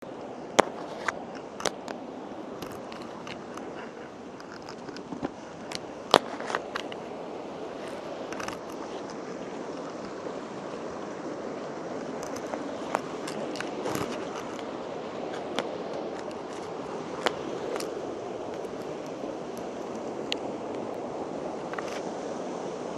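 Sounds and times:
stream rushing over rocks: 0:00.0 - 0:22.9
sharp clicks and scrapes: 0:02.6 - 0:07.0, 0:07.8 - 0:10.2, 0:12.0 - 0:14.7, 0:15.3 - 0:19.6.

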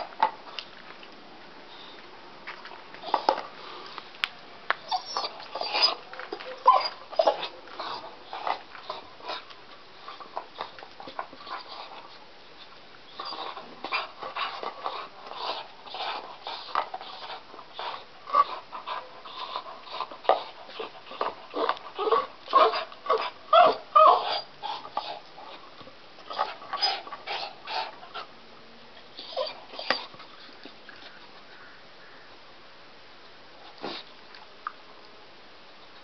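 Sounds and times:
dog whimpering and crying: 0:04.9 - 0:09.0, 0:20.8 - 0:25.1, 0:29.2 - 0:30.1.

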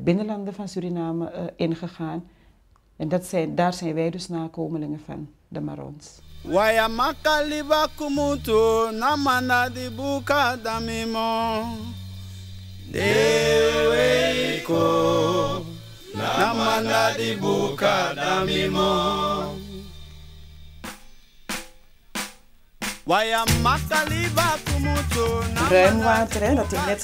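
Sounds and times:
steady bass notes: 0:06.2 - 0:21.1, 0:23.2 - 0:27.0
voices singing chant-like melody: 0:06.3 - 0:12.1, 0:12.8 - 0:20.1, 0:23.1 - 0:27.0
sharp percussive strikes: 0:10.6 - 0:27.0.

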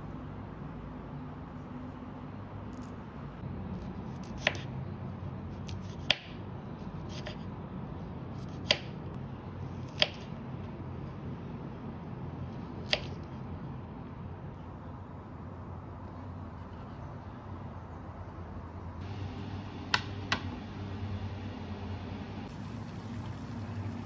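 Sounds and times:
steady low hum: 0:00.0 - 0:24.0
knife slicing broccoli stem: 0:12.8 - 0:13.2.

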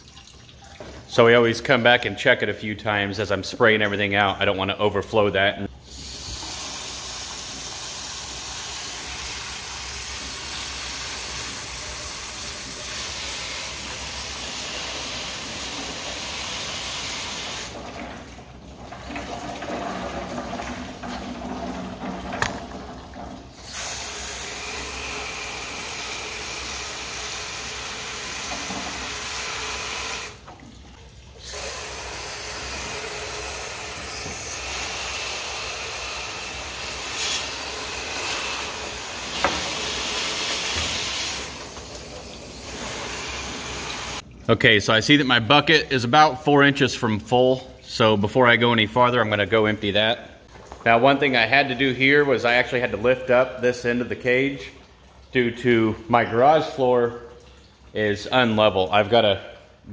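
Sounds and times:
hose spraying water on metal: 0:05.9 - 0:17.9, 0:23.6 - 0:30.4, 0:31.4 - 0:44.2.

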